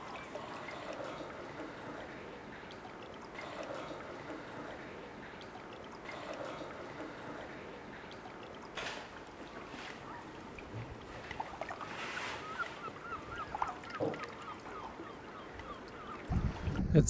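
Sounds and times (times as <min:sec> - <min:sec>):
lapping water: 0:00.0 - 0:16.8
wind: 0:00.0 - 0:17.0
waterfowl calling: 0:11.2 - 0:16.4.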